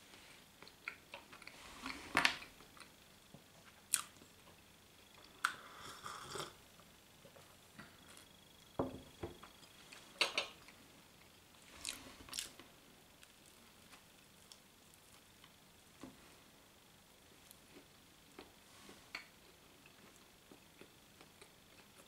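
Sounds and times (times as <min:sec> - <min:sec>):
person chewing: 0:03.9 - 0:04.2, 0:11.8 - 0:12.6
person sipping: 0:05.4 - 0:06.6.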